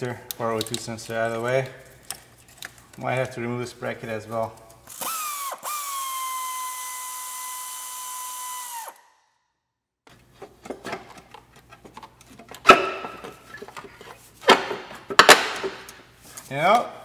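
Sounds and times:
air ratchet whining: 4.9s - 9.1s.

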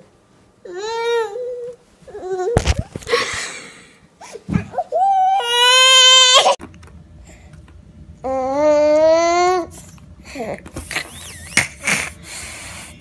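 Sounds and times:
toddler crying and wailing: 4.7s - 6.6s, 8.3s - 9.7s.

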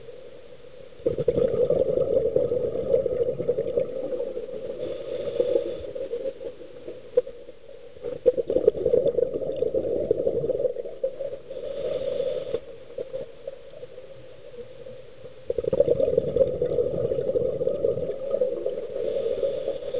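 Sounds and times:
exhaled bubbles rushing: 1.0s - 6.5s, 8.0s - 11.4s, 15.5s - 19.9s
regulator inhalation hiss: 4.6s - 6.4s, 11.4s - 12.7s.

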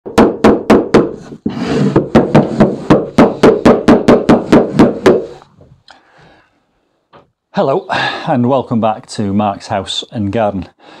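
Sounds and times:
hammer blows on timber: 1.8s - 5.4s.

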